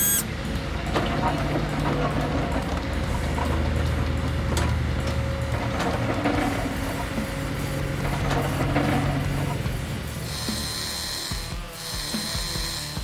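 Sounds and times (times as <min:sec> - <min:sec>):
toy gear motors whirring: 0:00.0 - 0:00.2, 0:10.2 - 0:13.0
background music: 0:00.0 - 0:13.0.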